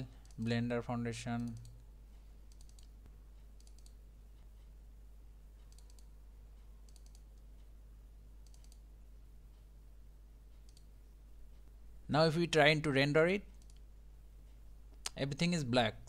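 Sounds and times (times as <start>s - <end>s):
low steady hum: 0.0s - 16.0s
computer mouse double-clicks: 2.5s - 2.9s, 3.6s - 4.0s, 5.6s - 6.1s, 6.8s - 7.4s, 8.4s - 8.8s.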